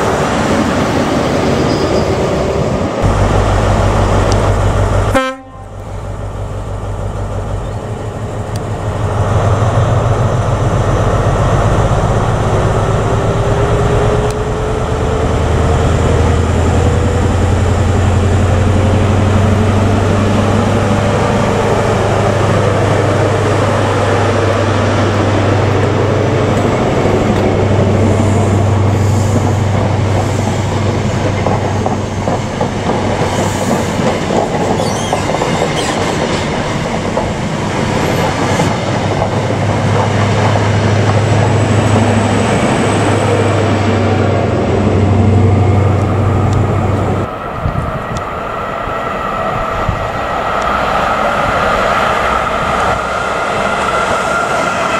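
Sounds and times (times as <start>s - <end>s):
wheels rumbling on rail: 0.0s - 54.9s
rising engine whine: 2.5s - 29.9s, 40.1s - 54.9s
diesel engine drone: 2.8s - 30.2s, 40.3s - 48.9s.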